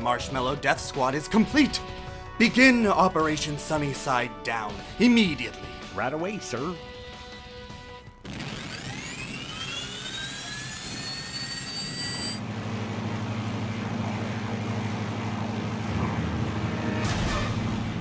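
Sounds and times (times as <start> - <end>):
engine whine rising: 8.3 - 18.0
low engine drone: 8.6 - 18.0.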